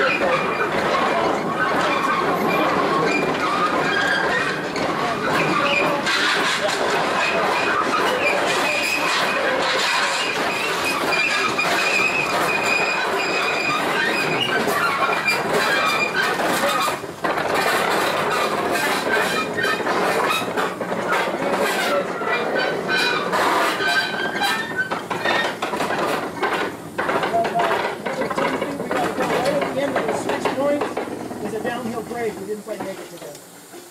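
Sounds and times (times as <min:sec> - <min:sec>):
train wheels squealing on a curve: 0:00.0 - 0:04.6, 0:05.2 - 0:17.0, 0:21.1 - 0:25.6
clickety-clack over rail joints: 0:00.0 - 0:33.9.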